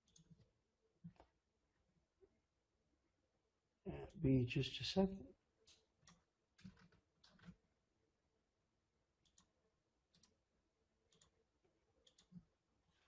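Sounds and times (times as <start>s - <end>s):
faint computer mouse clicks: 12.0s - 12.4s.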